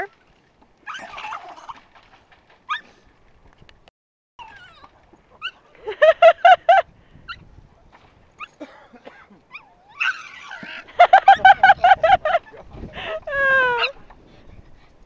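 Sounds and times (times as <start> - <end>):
puppy yips: 2.7 - 2.9.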